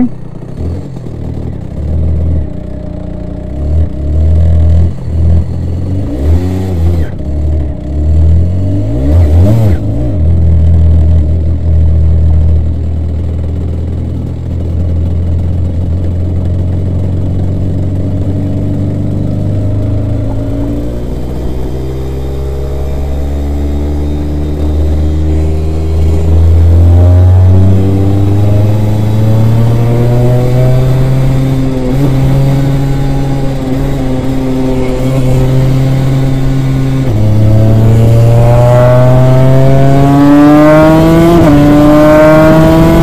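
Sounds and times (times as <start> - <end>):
kart engine revving: 13.8 - 43.0.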